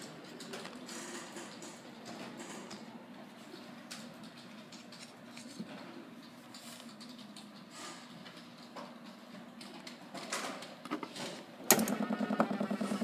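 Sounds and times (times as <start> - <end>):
clicks and rustles of handling: 0.0 - 11.5
stepper motor humming: 11.7 - 13.0.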